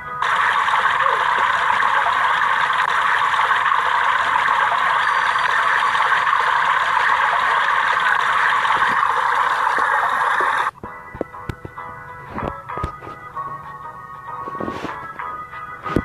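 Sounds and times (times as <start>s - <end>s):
fountain water splashing: 0.2s - 10.7s.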